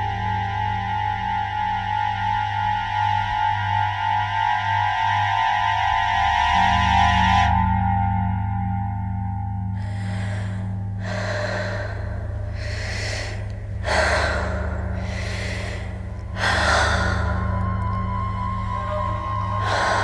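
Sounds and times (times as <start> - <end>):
steady low drone: 0.0 - 20.0
heavy breathing and gasps: 9.8 - 20.0.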